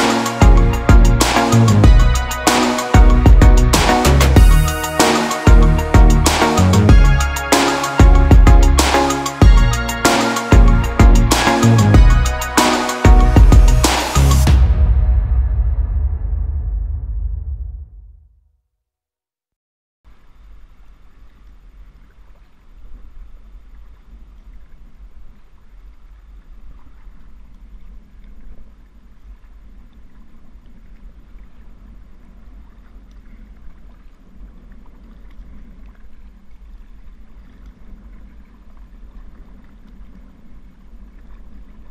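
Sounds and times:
water sloshing and splashing: 0:21.8 - 0:41.9.

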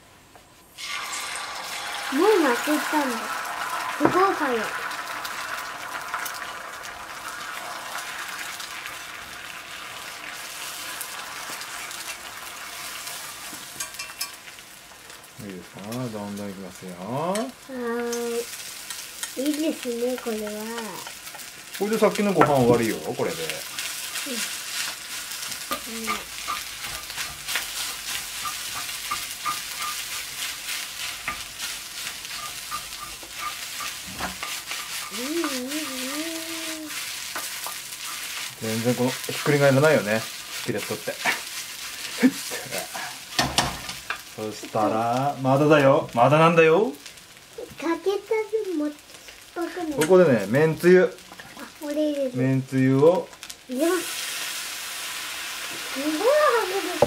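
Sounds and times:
egg sizzling in skillet: 0:00.6 - 0:57.0
spatula scraping a pan: 0:18.4 - 0:19.6, 0:22.5 - 0:44.2.

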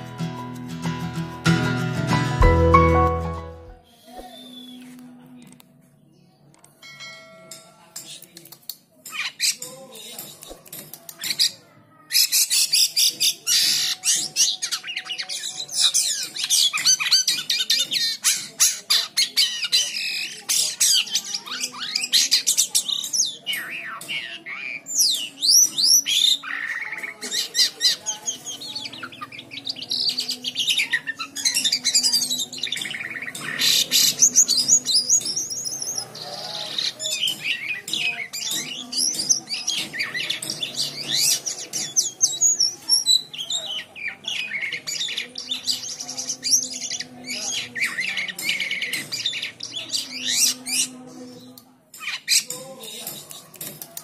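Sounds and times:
starling singing: 0:11.2 - 0:54.0.

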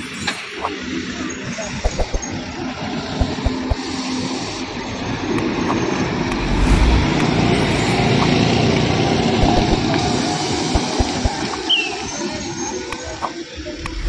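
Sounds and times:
tyre and road noise: 0:00.0 - 0:14.0.

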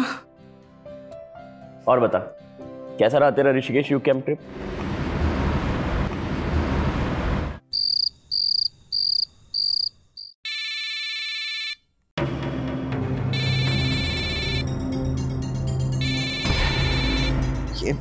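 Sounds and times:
background music: 0:00.0 - 0:04.8, 0:12.2 - 0:18.0
phone ringtone beeps: 0:13.4 - 0:14.6, 0:16.0 - 0:17.4
dense electronic tone: 0:16.0 - 0:17.8.

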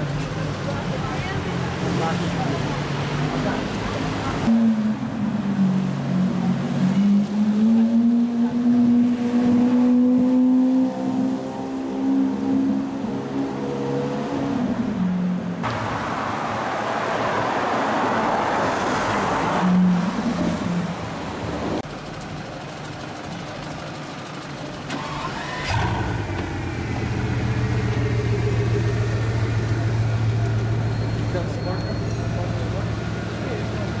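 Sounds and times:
hissing wet road noise: 0:15.6 - 0:34.0
car engine pulling away: 0:21.9 - 0:34.0.

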